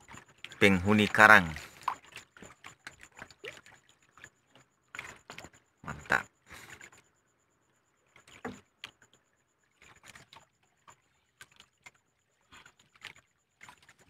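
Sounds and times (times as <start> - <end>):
faint clicks and knocks on a boat: 0.0 - 14.0.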